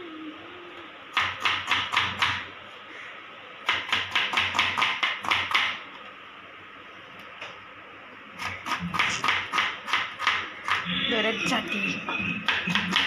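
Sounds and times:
knife chopping on a plastic board: 3.7 - 5.8, 8.4 - 10.8, 12.4 - 13.0.

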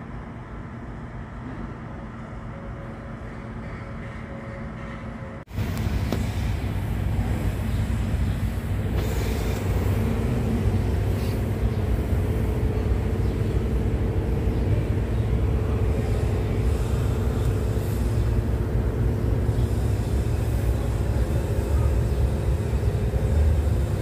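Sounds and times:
steady whine: 0.0 - 24.0
diesel engine running: 5.5 - 24.0.

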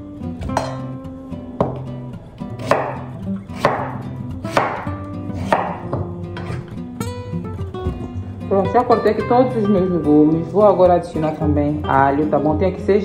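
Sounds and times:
knife chopping on wooden board: 1.6 - 1.9, 2.6 - 6.7.

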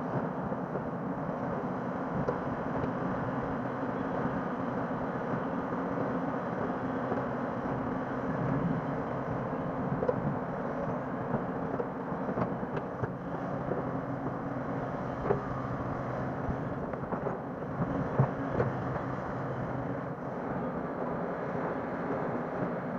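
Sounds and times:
excavator diesel engine running: 0.0 - 22.7.

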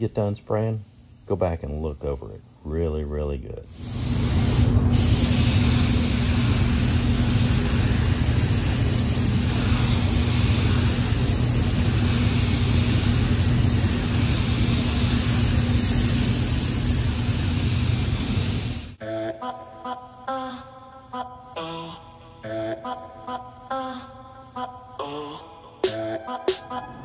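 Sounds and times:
spray booth air rush and hum: 0.0 - 2.9, 3.7 - 26.5
paint spray gun spraying: 3.7 - 19.0.

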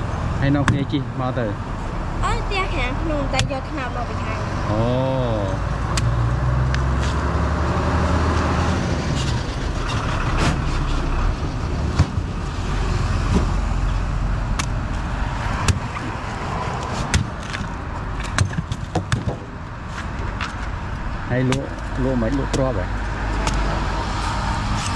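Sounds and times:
vehicle engine rumbling past: 0.0 - 17.0
road traffic: 0.0 - 24.9.

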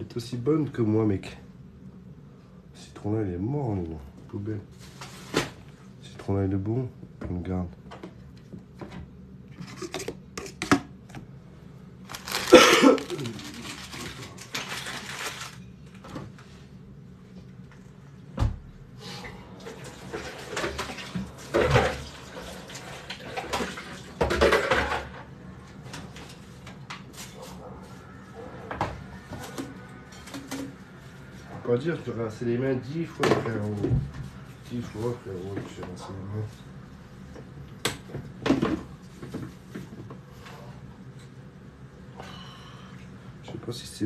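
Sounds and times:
dishes and utensils clattering: 23.4 - 25.2.

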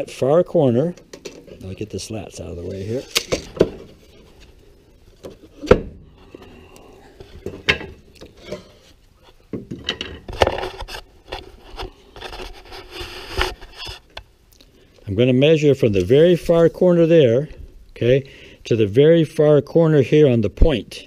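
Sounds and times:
wood rubbing and scraping: 1.0 - 14.2.

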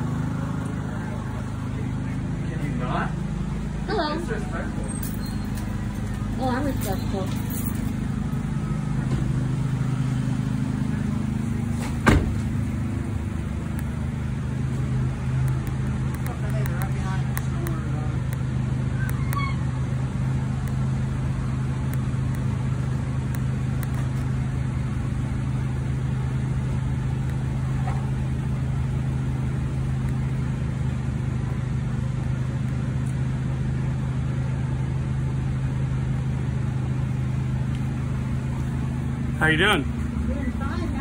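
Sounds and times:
vehicle engine idling: 0.0 - 41.0.

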